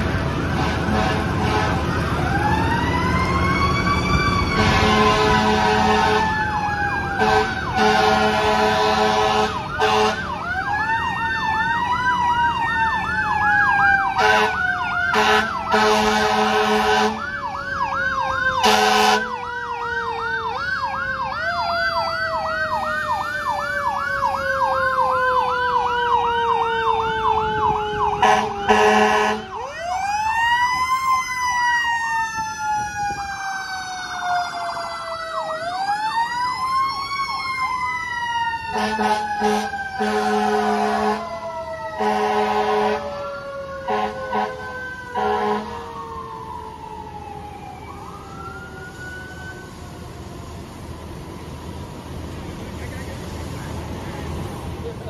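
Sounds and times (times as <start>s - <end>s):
mechanical siren wailing: 0.0s - 51.0s
air horn blasts: 0.6s - 1.9s, 4.6s - 6.3s, 7.2s - 10.2s, 14.2s - 17.2s, 18.6s - 19.3s, 28.2s - 29.4s, 38.7s - 41.3s, 42.0s - 43.1s, 43.9s - 44.6s, 45.2s - 45.8s
electronic siren yelping: 1.9s - 50.6s.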